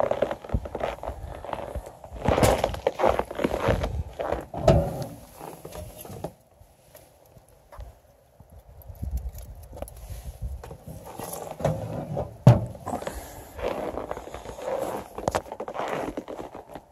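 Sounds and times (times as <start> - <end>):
footsteps crunching in snow: 0.0 - 6.1, 12.8 - 16.9
handling rustles and knocks: 2.3 - 7.9, 9.2 - 15.6
metal grill lid clunking shut: 4.5 - 5.2, 11.6 - 12.9.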